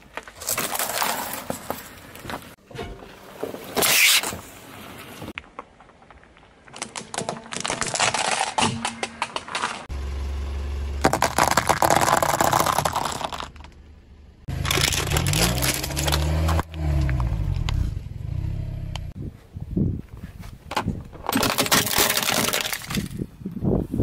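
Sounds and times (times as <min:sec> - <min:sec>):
plastic toys cracking under tyre: 0:05.4 - 0:09.9, 0:11.0 - 0:13.8, 0:14.5 - 0:16.7, 0:20.7 - 0:23.3
car engine humming: 0:09.9 - 0:11.7, 0:12.5 - 0:19.1.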